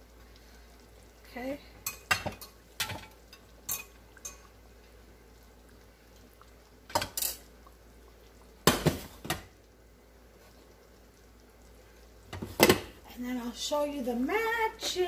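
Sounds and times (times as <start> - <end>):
dishes and utensils clattering: 1.9 - 4.5, 6.9 - 7.4.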